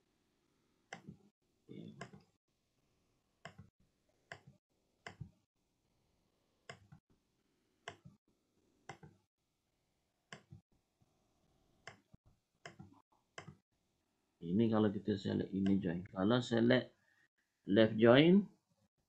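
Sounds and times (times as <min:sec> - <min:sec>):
computer mouse clicks: 0:08.9 - 0:09.2, 0:11.9 - 0:13.6.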